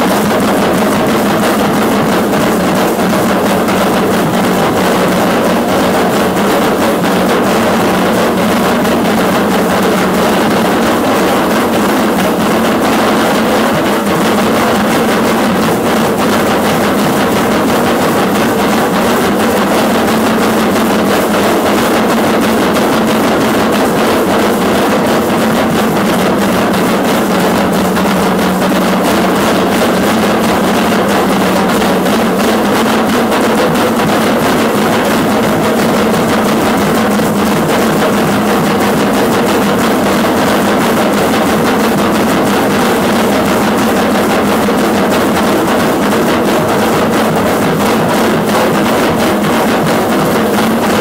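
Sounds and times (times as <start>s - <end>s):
dense rattling: 0.0s - 51.0s
loud drumming: 0.0s - 51.0s.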